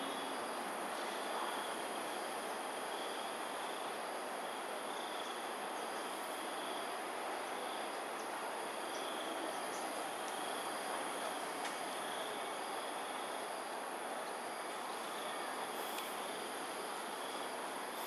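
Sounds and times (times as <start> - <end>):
broad background hiss: 0.0 - 18.0
insects chirring: 0.0 - 18.0.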